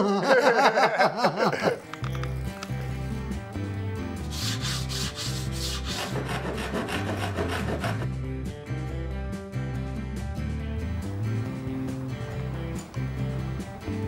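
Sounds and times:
background music: 0.0s - 14.0s
hand tool scraping bamboo rod: 4.3s - 8.1s.

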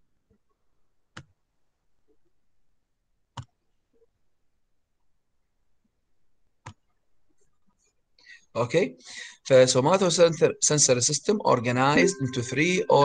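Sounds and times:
computer mouse clicks: 1.1s - 1.4s, 3.3s - 3.6s, 6.6s - 6.9s.

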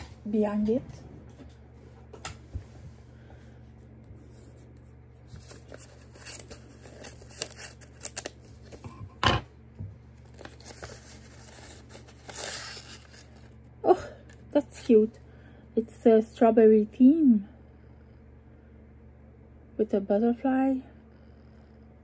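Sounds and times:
paper rustling and crinkling: 4.2s - 9.0s, 10.2s - 13.6s
paper tearing: 5.4s - 8.8s, 10.3s - 13.5s.

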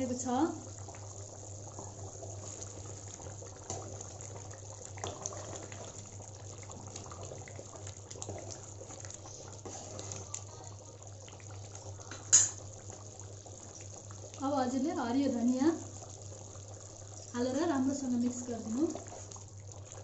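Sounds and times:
gravy bubbling: 0.0s - 20.0s
spatula scraping a pot: 9.6s - 10.3s.

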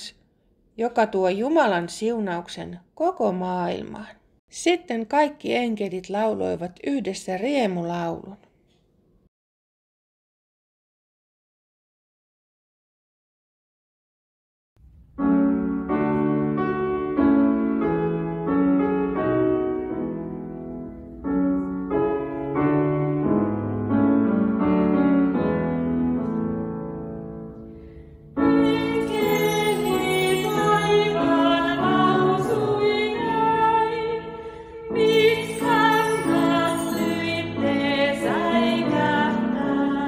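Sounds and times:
grand piano playing: 14.8s - 40.0s
women singing: 28.4s - 40.0s
bar chimes shimmering: 28.5s - 32.5s, 35.0s - 38.8s.

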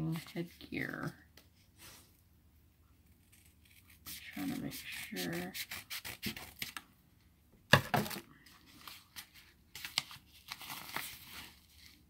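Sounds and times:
wrapping crinkling and rustling: 8.0s - 12.0s.

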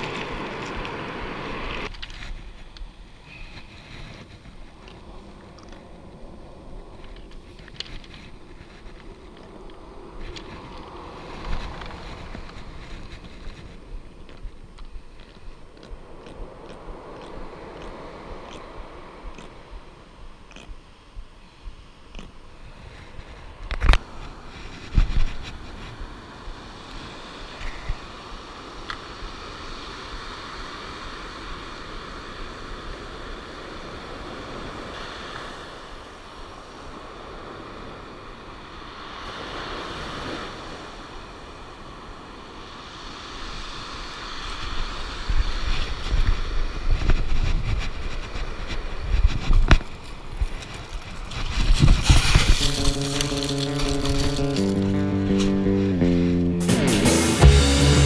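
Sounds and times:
surf on pebble beach: 0.0s - 20.3s, 21.5s - 58.0s
wind on microphone: 0.0s - 56.3s
fabric brushing microphone: 51.3s - 56.2s.

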